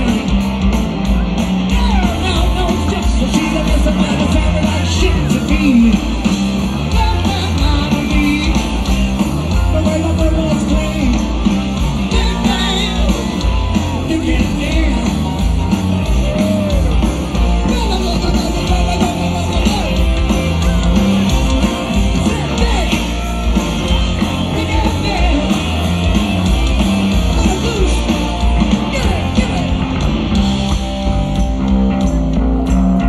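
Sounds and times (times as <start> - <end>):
singer singing and yelling: 0.0 - 31.0
live rock band playing: 0.0 - 33.0.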